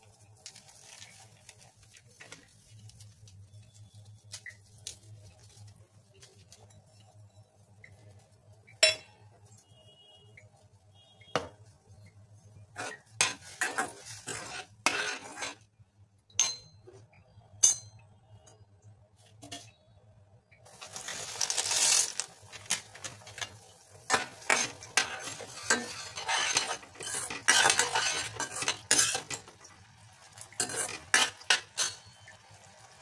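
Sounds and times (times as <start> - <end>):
spoon scraping pot: 12.6 - 15.7, 23.1 - 29.5, 30.4 - 32.3
metal clanking on cooking pot: 16.3 - 17.0, 23.4 - 29.6, 30.5 - 32.3.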